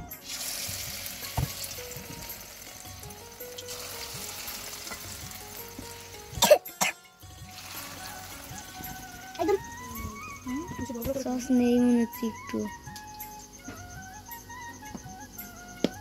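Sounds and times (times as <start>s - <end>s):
oil sizzling while deep-frying: 0.0s - 10.2s
background music: 0.0s - 16.0s.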